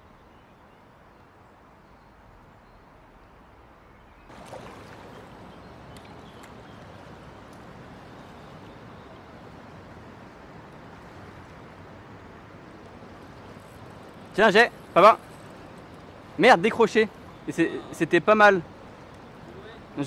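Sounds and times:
flowing river water: 0:00.0 - 0:20.0
splash: 0:04.3 - 0:06.8.

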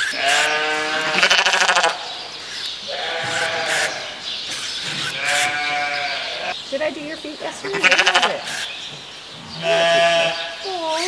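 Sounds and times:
sheep bleating: 0:00.0 - 0:02.1, 0:02.8 - 0:04.2, 0:04.9 - 0:06.6, 0:07.6 - 0:08.6, 0:09.5 - 0:10.8.

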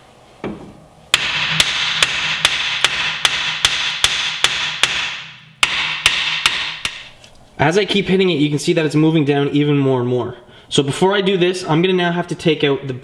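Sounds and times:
hammer striking metal: 0:01.1 - 0:07.2.

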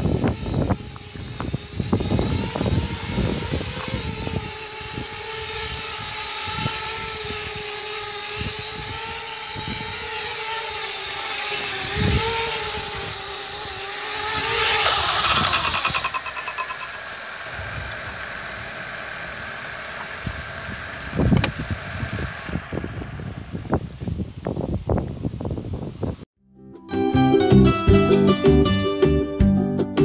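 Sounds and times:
drone motors whining: 0:00.0 - 0:23.7.

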